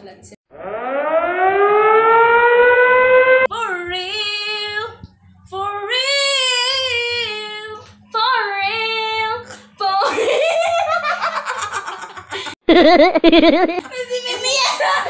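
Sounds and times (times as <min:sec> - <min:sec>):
girls giggling and laughing: 0:10.0 - 0:15.0.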